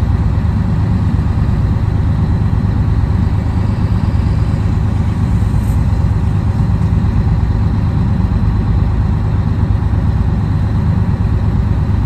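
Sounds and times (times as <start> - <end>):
diesel truck engine rumbling: 0.0 - 12.0.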